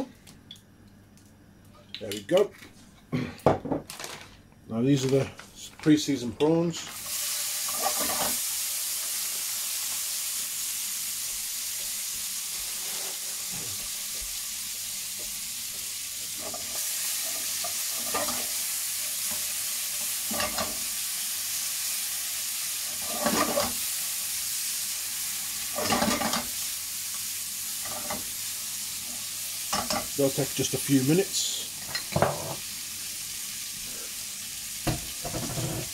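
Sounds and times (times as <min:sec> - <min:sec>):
prawns sizzling in oil: 0:06.7 - 0:35.9
spatula scraping pan: 0:07.6 - 0:08.4, 0:16.3 - 0:18.6, 0:20.0 - 0:20.9, 0:22.9 - 0:23.8, 0:25.7 - 0:26.5, 0:35.2 - 0:35.9.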